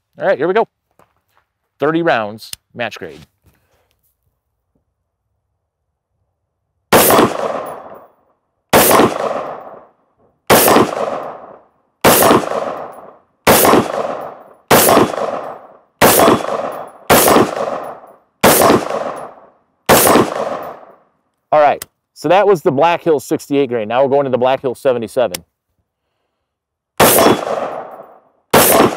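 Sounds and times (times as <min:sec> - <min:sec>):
rifle gunshots: 0:06.9 - 0:08.0, 0:08.7 - 0:09.9, 0:10.5 - 0:21.0, 0:27.0 - 0:28.9
ringing echo: 0:27.0 - 0:28.9.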